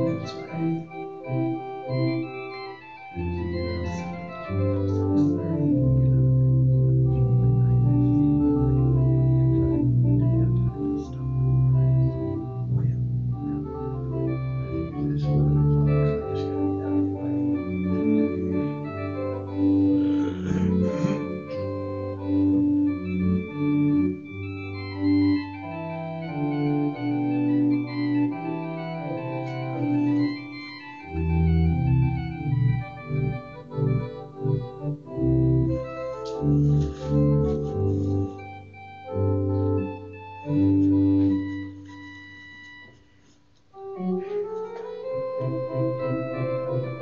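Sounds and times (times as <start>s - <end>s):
church organ chords: 0.0s - 47.0s.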